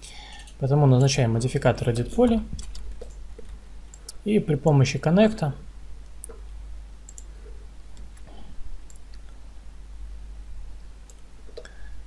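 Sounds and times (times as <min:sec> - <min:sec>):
low steady hum: 0:00.0 - 0:12.0
computer mouse clicks: 0:02.6 - 0:04.2, 0:07.1 - 0:07.3, 0:08.0 - 0:09.4, 0:11.1 - 0:11.8.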